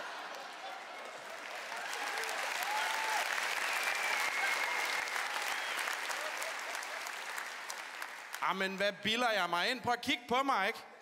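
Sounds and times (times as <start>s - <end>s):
audience applauding and cheering: 0.0s - 8.6s.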